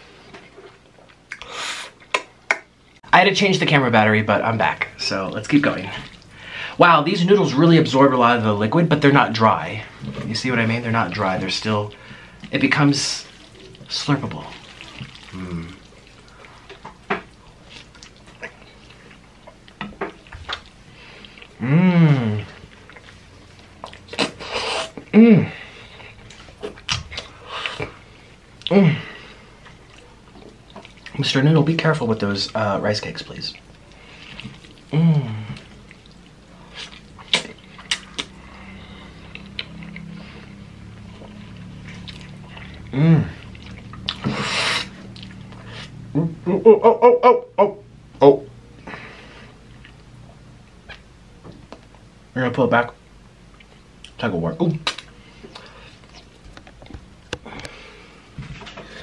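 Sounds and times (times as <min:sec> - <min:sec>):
low steady hum: 0:00.0 - 0:59.0
wet chewing and mouth sounds: 0:00.2 - 0:02.8, 0:04.8 - 0:06.4, 0:11.1 - 0:25.1, 0:25.8 - 0:46.1, 0:48.8 - 0:52.1, 0:53.4 - 0:54.2, 0:54.8 - 0:59.0
noodle slurps: 0:12.4 - 0:16.8, 0:23.9 - 0:25.1, 0:35.5 - 0:45.9
wet smacks of eating noodles: 0:35.5 - 0:38.6, 0:54.8 - 0:57.8.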